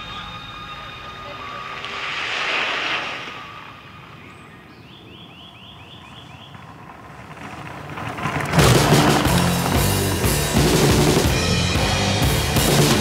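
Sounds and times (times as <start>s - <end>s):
rushing wind: 0.0s - 11.7s
songbird singing: 2.9s - 7.1s
bike rattling over cobblestones: 5.9s - 11.6s
drum-backed music: 8.6s - 13.0s.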